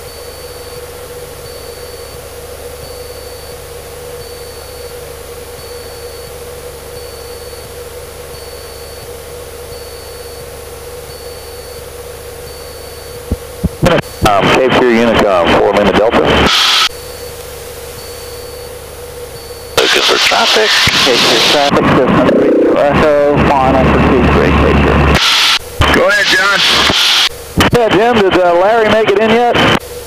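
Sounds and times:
faint high beep: 0:00.0 - 0:02.2, 0:02.8 - 0:03.6, 0:04.2 - 0:09.1, 0:09.7 - 0:14.4, 0:18.0 - 0:21.4
plane engine droning: 0:00.0 - 0:30.0.

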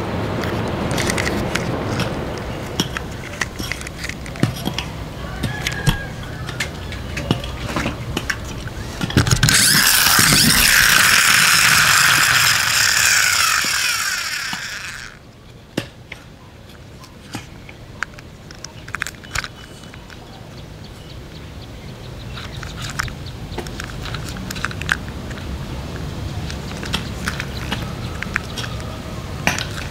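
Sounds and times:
small handling clicks: 0:00.4 - 0:04.9, 0:05.6 - 0:15.2, 0:17.3 - 0:20.2, 0:22.3 - 0:25.5, 0:26.4 - 0:28.9
toy plastic gears whirring: 0:02.7 - 0:04.8, 0:08.6 - 0:15.2, 0:18.5 - 0:19.9, 0:22.4 - 0:25.4, 0:26.5 - 0:29.9.

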